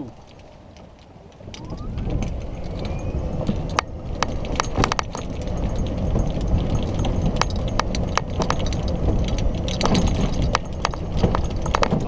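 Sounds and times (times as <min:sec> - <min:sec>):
sharp clicks and rattles: 0:00.0 - 0:12.0
steady rumble: 0:00.0 - 0:12.0
golf cart motor whine: 0:01.3 - 0:09.1.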